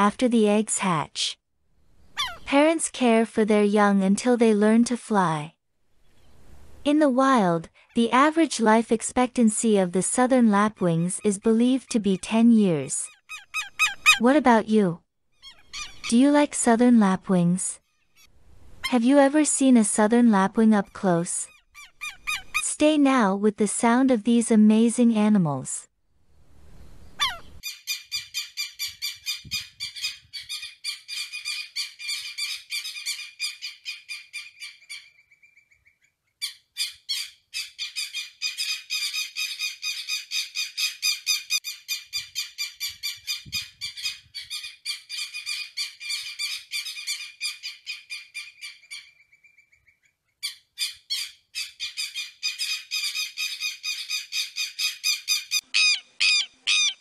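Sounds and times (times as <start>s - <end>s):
lapwing calling: 2.0s - 2.5s, 13.0s - 14.2s, 15.4s - 16.1s, 21.4s - 22.6s, 27.0s - 27.7s, 42.2s - 57.0s.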